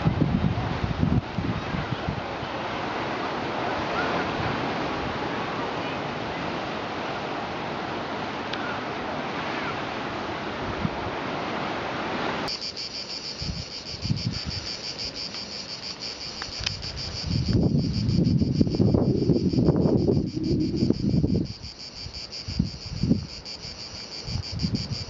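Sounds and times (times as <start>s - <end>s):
wind gusting on microphone: 0.0s - 12.5s, 13.4s - 15.2s, 16.5s - 25.0s
distant surf: 0.0s - 25.0s
cicadas buzzing: 12.5s - 25.0s
wind rushing: 16.7s - 21.7s.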